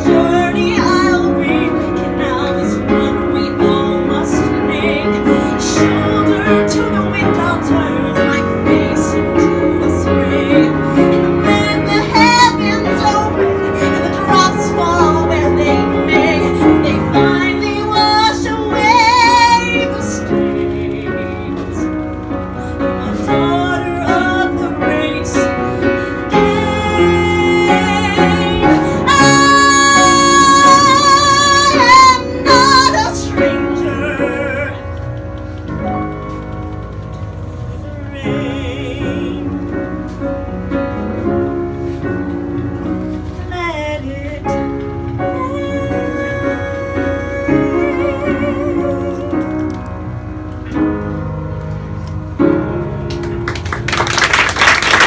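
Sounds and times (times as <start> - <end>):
woman singing a ballad: 0.0 - 22.1, 22.7 - 35.0, 37.7 - 40.4, 43.2 - 49.9
piano accompaniment: 0.0 - 55.0.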